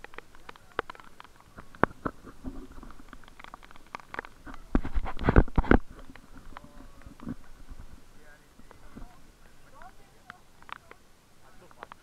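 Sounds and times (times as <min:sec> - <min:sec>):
footsteps on wet trail: 0:00.0 - 0:12.0.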